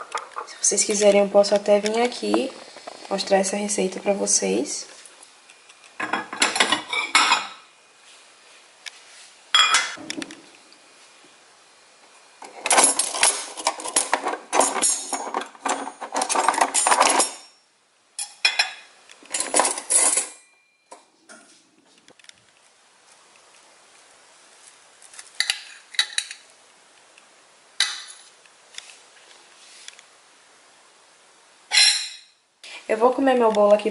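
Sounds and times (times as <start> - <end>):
ceramic plate clinking: 9.6 - 10.0, 31.7 - 32.4
cutlery rattling in a drawer: 12.4 - 17.6, 19.3 - 20.5.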